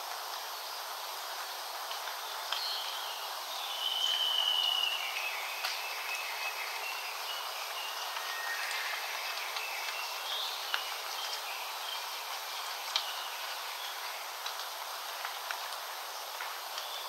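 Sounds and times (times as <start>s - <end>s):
steady hiss: 0.0s - 17.0s
birds whistling: 3.6s - 10.8s.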